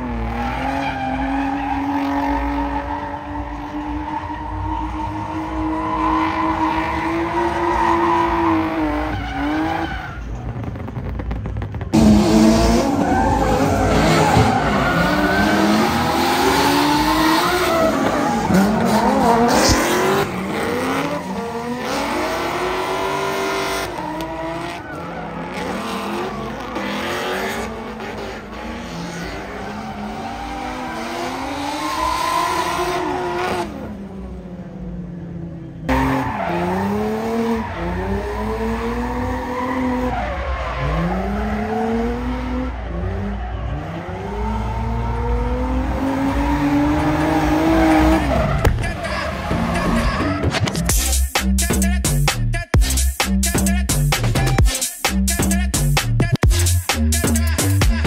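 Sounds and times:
car engines revving: 0.0 - 54.6
tyres skidding and squealing: 0.0 - 58.0.

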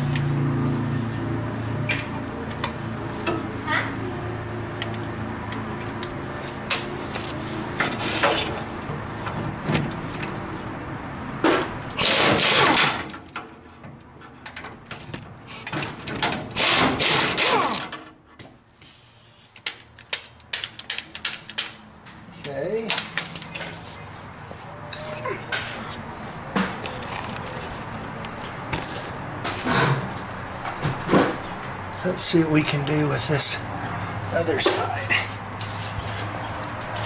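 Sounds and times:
pneumatic wrench rattling: 11.9 - 13.2, 15.5 - 18.0.

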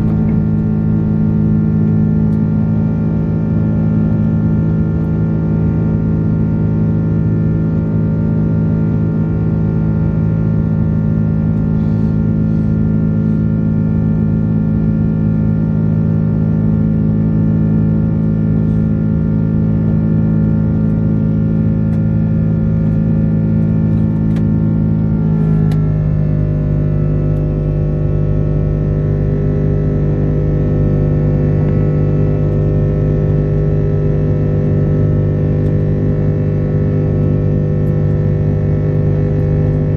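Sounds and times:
jet engine drone in cabin: 0.0 - 39.9.

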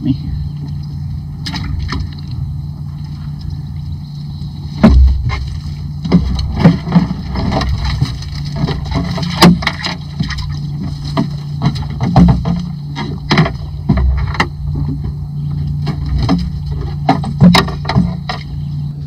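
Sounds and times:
steady low hum: 0.0 - 19.0
sharp knocks: 4.8 - 15.1, 15.8 - 18.5.

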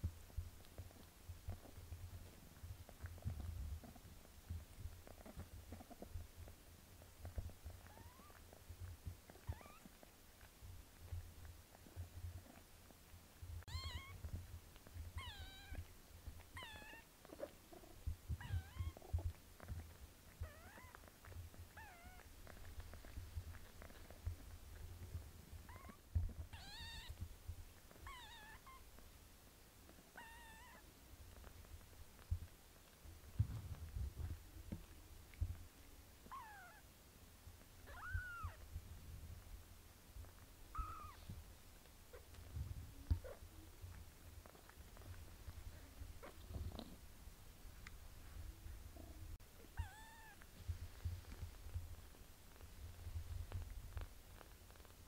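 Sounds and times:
soft low rustling: 0.0 - 55.0
kitten mewing: 7.8 - 8.4, 13.6 - 14.3, 15.1 - 15.9, 16.5 - 19.3, 25.7 - 27.2, 30.1 - 30.8, 37.9 - 38.6, 40.7 - 41.3, 49.6 - 50.4.

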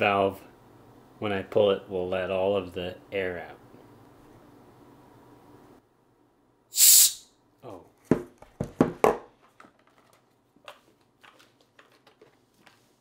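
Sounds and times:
hot gas hissing from pipe valve: 6.7 - 7.3.

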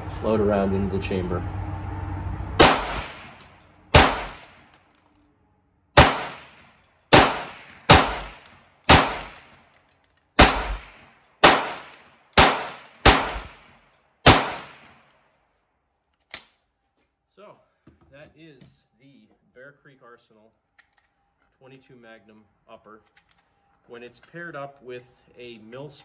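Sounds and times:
rifle gunshots: 2.6 - 4.6, 6.0 - 9.5, 10.4 - 14.9.

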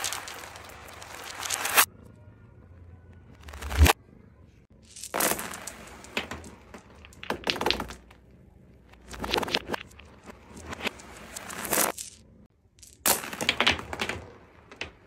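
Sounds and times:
toys clattering reversed: 8.9 - 12.2.

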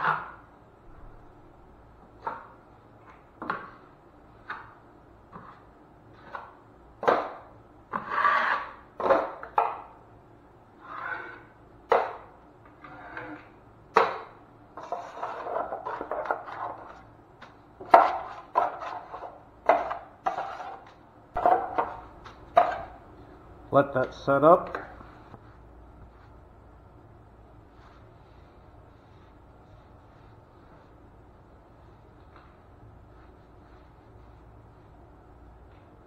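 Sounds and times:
taping knife scraping compound: 7.9 - 8.9, 10.8 - 11.6, 12.8 - 13.6.

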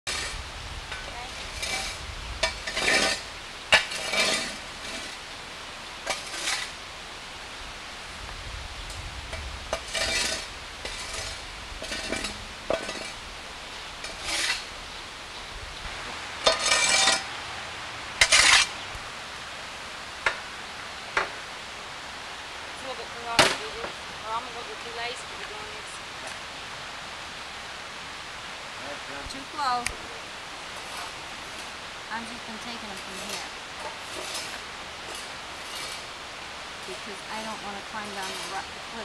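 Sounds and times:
metal objects scraping and clinking: 0.9 - 5.2, 6.0 - 6.8, 9.7 - 13.2, 14.0 - 14.7, 16.4 - 17.3, 18.2 - 18.7, 30.8 - 36.2, 36.9 - 39.0.

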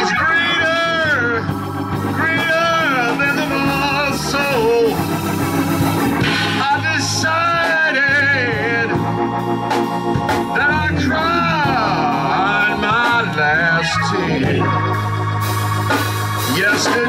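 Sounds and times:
man singing into a microphone: 0.0 - 5.2, 6.4 - 9.2, 10.5 - 14.8, 16.5 - 17.0
organ chords: 0.0 - 17.0.

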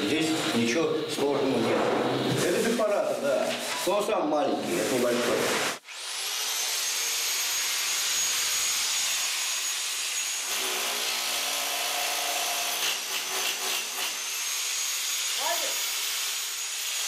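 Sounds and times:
hammer drilling into masonry: 6.8 - 17.0.

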